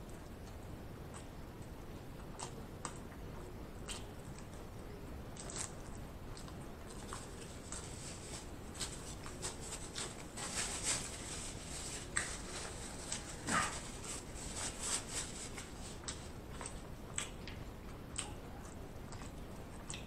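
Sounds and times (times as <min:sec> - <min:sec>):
person chewing: 0:05.4 - 0:10.4, 0:11.0 - 0:20.0.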